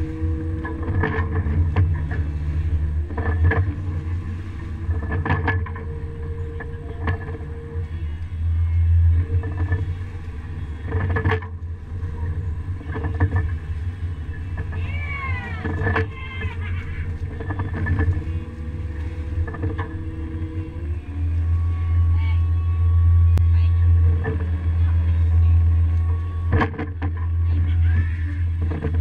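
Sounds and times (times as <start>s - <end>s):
boat engine humming: 0.0s - 29.0s
knocks and clanks on deck: 10.8s - 11.6s.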